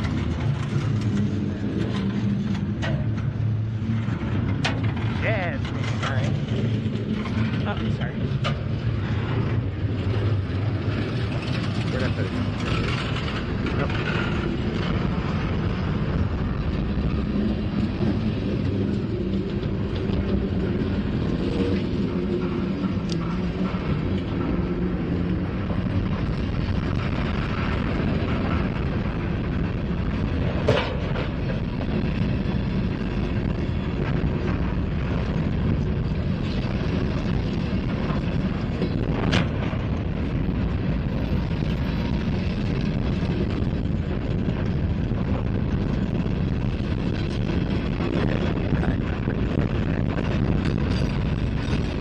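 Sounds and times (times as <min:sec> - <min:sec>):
train wheels on rail: 0:00.0 - 0:52.0.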